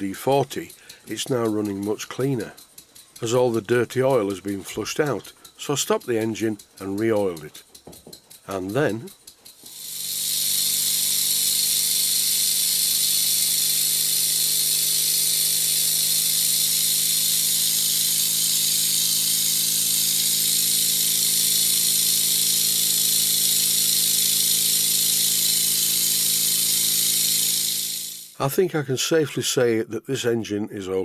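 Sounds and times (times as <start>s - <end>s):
model steam engine exhaust buzz: 0.0s - 28.5s
hiss of escaping air: 9.7s - 28.4s.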